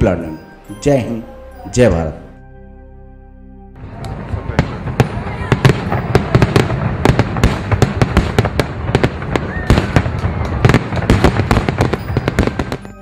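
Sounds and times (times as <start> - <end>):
fireworks bangs and crackles: 3.8 - 13.0
rising firework whistle: 8.4 - 13.0.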